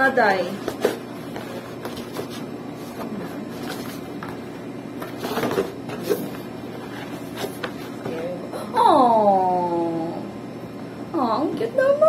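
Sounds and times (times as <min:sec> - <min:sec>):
cardboard rustling and scraping: 0:00.4 - 0:08.4.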